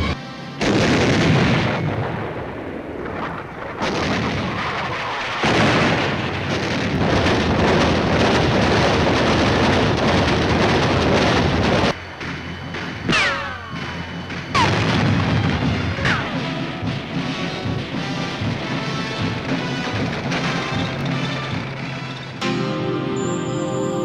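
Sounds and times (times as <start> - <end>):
big guns firing: 0.6 - 12.0, 13.1 - 17.0
shells bursting: 0.6 - 17.0.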